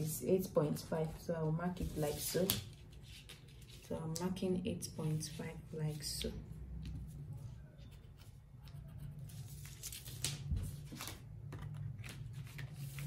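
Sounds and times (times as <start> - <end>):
paper rustling and scraping: 9.2 - 13.0.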